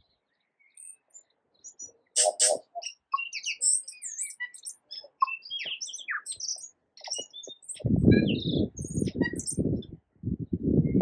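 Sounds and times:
bird singing high whistles: 1.7 - 9.6.

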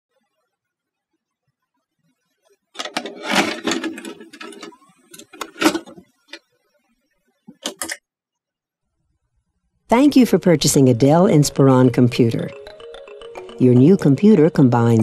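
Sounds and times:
video recorder loading tape: 2.8 - 6.4.

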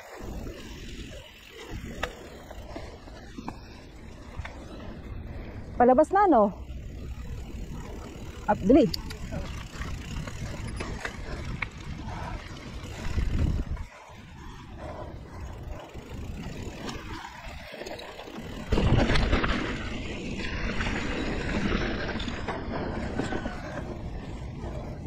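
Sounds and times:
bike tyres rolling on dirt: 0.0 - 25.0
wind rushing over camera: 6.6 - 25.0.

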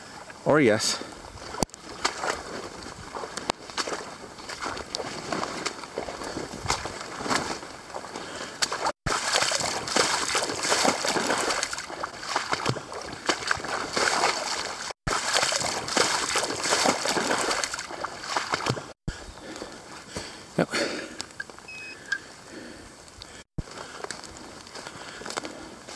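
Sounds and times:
footsteps splashing through water: 1.4 - 19.0.

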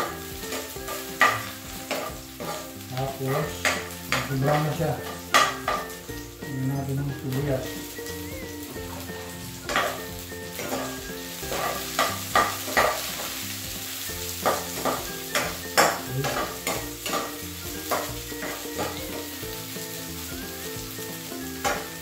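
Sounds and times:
metal spoon scraping a pan: 0.0 - 6.0, 8.8 - 13.4, 14.3 - 19.4, 21.6 - 22.0
onion sizzling in hot oil: 0.0 - 22.0.

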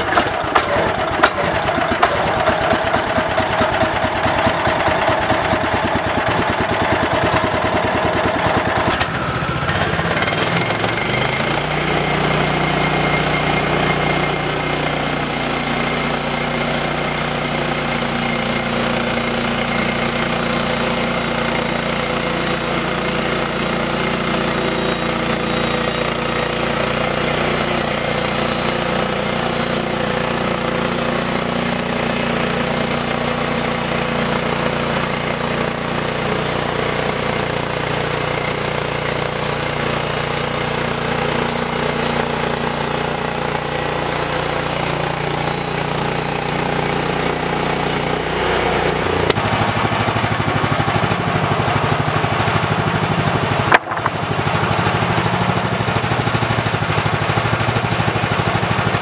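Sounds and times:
petrol engine running under load: 0.0 - 59.0
saw blade hissing through wood: 10.1 - 49.4.

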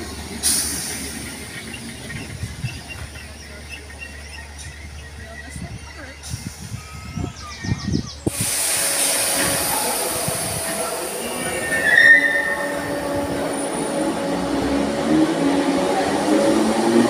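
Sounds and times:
low train hum: 0.0 - 17.0
train running noise: 0.0 - 17.0
wheel squeal: 11.4 - 13.1.

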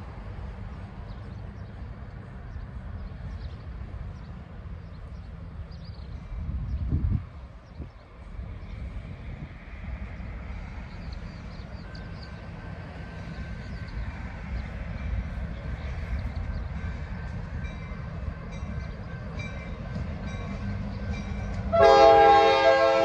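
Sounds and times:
diesel locomotives rumbling: 0.0 - 23.0
locomotive air horn chord: 21.7 - 23.0.

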